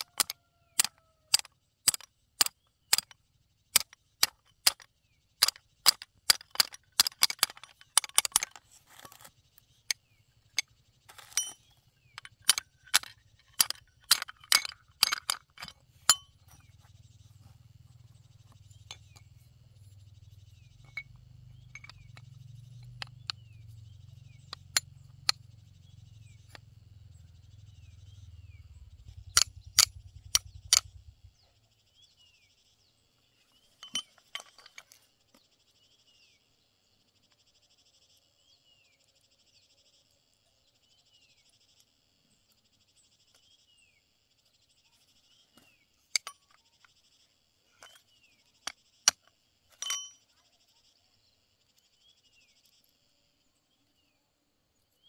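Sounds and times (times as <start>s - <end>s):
metal tools clinking: 5.4s - 9.3s, 11.1s - 16.9s, 20.8s - 23.2s, 33.7s - 35.1s, 46.1s - 46.6s, 48.6s - 50.3s.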